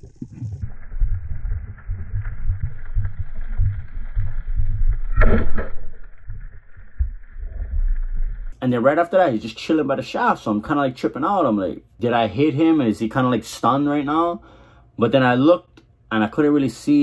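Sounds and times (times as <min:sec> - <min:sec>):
muffled underwater rumble: 0:00.0 - 0:08.6
speargun firing crack: 0:05.1 - 0:06.5.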